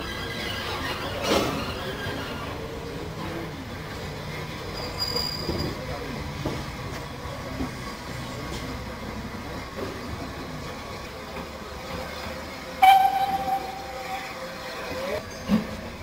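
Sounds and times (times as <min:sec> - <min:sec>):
station noise: 0:12.7 - 0:15.0
steam locomotive whistle: 0:12.8 - 0:14.8.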